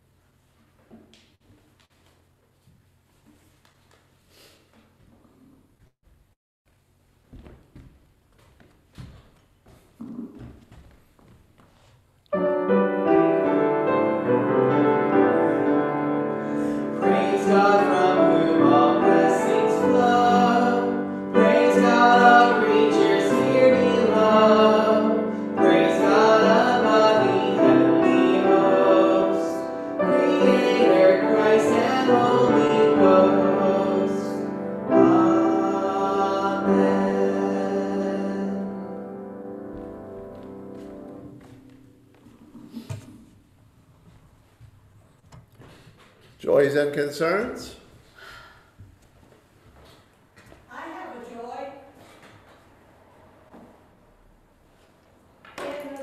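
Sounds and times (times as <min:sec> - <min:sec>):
upright piano music: 0:12.3 - 0:42.6
person singing: 0:16.8 - 0:39.2.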